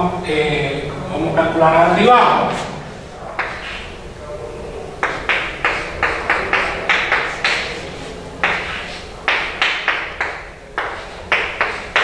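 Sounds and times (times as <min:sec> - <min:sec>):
chalk tapping and scraping: 0:03.4 - 0:03.9, 0:05.0 - 0:12.0.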